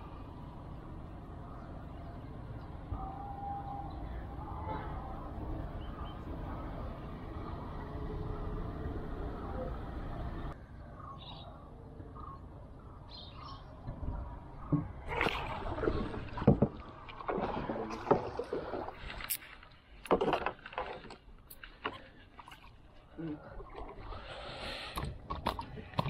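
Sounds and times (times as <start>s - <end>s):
water splashing: 14.7s - 26.0s.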